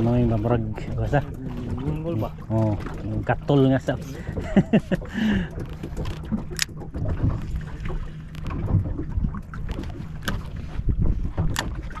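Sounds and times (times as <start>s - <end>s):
water slapping a boat hull: 0.0s - 12.0s
wind buffeting microphone: 0.0s - 12.0s
sharp clicks and knocks: 5.5s - 7.6s, 11.3s - 12.0s.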